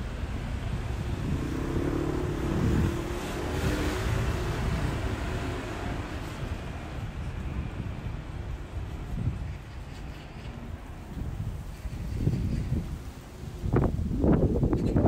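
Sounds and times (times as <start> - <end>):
engine hum: 0.0 - 15.0
car driving past: 0.8 - 7.3.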